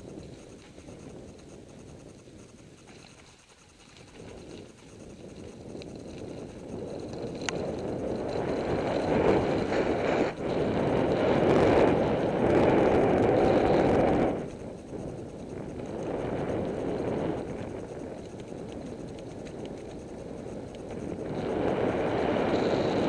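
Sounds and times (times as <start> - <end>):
wind noise on microphone: 0.0 - 23.0
click: 7.0 - 7.9.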